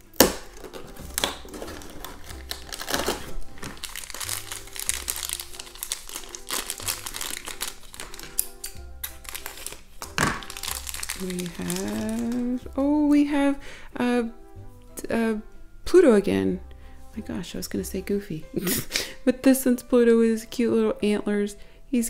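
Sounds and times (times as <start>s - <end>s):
plastic bag crinkling: 0.0s - 12.6s
plastic bag snap: 0.0s - 12.6s
background music: 0.0s - 22.0s.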